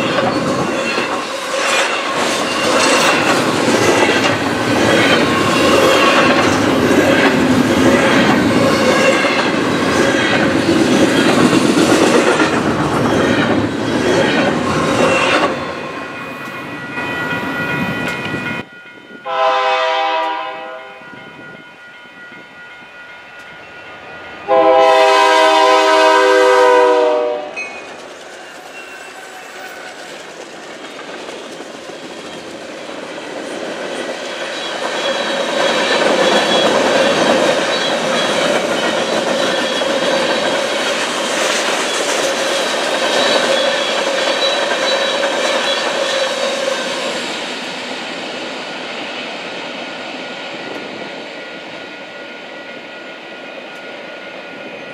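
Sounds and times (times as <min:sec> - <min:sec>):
train wheel clatter: 0:00.0 - 0:18.7, 0:27.6 - 0:49.6
freight train rumbling past: 0:00.0 - 0:54.9
diesel locomotive horn: 0:19.2 - 0:21.2, 0:24.5 - 0:27.8.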